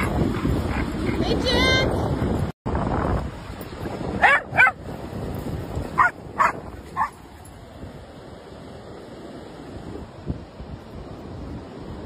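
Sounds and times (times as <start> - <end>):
dog barking in high yips: 4.2 - 4.8, 6.0 - 7.2.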